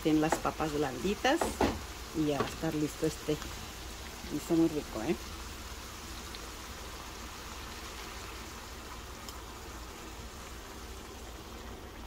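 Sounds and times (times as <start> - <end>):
sauce sizzling and bubbling in pan: 0.0 - 12.0.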